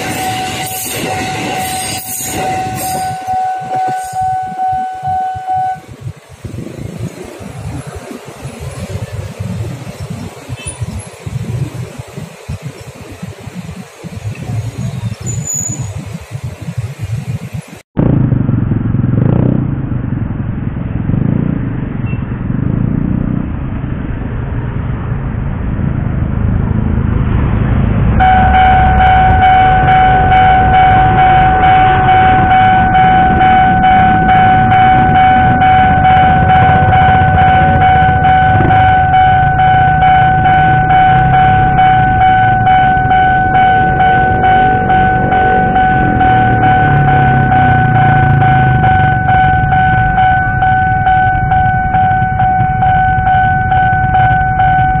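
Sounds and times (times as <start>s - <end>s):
level crossing warning alarm: 0.0s - 6.0s, 28.2s - 55.0s
motorbike engines passing: 0.0s - 24.8s, 25.4s - 55.0s.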